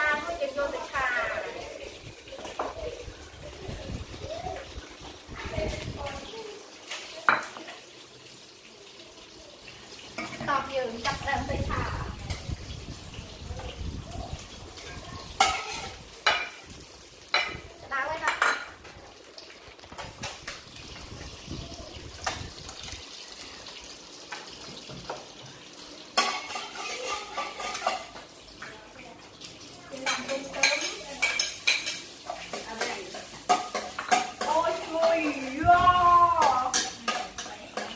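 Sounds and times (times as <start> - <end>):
beef sizzling in oil: 0.0 - 37.9
metal spatula scraping a wok: 15.4 - 16.0.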